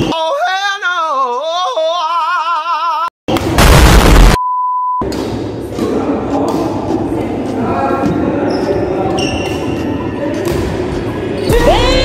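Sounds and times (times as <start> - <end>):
explosion-like boom: 3.4 - 4.4
censor bleep: 4.4 - 5.0
echoing hall ambience: 5.0 - 12.0.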